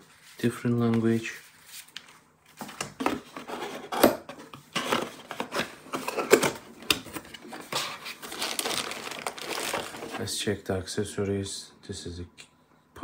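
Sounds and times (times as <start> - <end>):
cardboard box rustling: 7.1 - 10.2.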